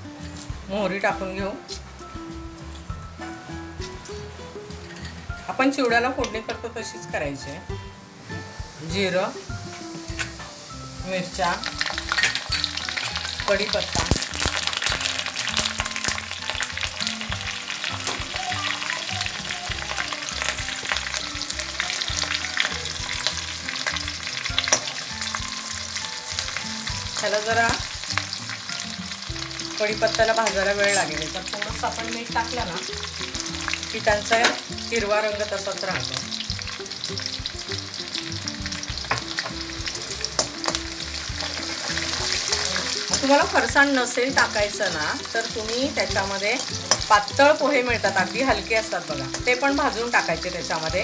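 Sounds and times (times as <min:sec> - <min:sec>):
spices sizzling in hot oil: 0:00.0 - 0:51.0
oil popping: 0:11.4 - 0:51.0
spatula stirring: 0:38.8 - 0:47.4.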